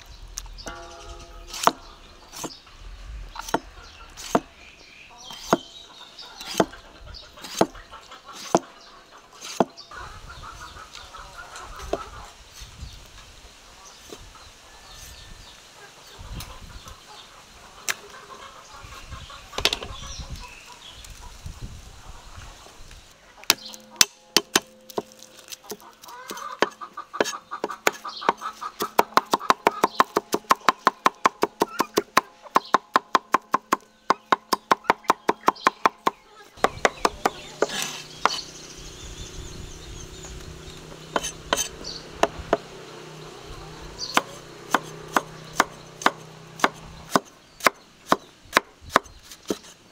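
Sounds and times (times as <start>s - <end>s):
knife chopping on cutting board: 41.1s - 42.6s.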